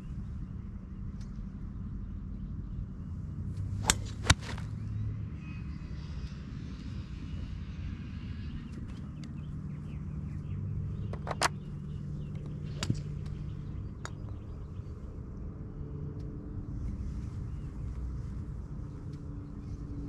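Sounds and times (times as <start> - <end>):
low engine drone: 0.0 - 20.0
golf club striking ball: 3.8 - 4.7.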